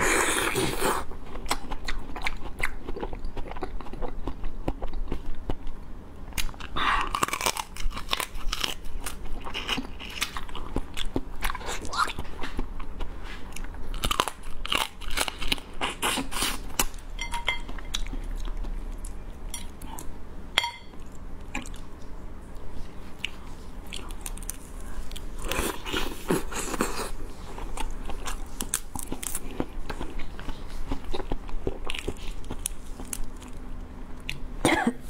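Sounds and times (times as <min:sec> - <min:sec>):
crab being chewed crunching: 0:06.4 - 0:20.1, 0:23.2 - 0:34.4.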